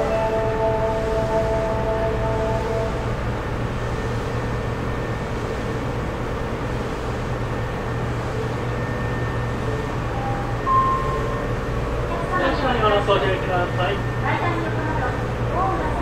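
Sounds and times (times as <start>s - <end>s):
electric train wheels rumbling: 0.0s - 16.0s.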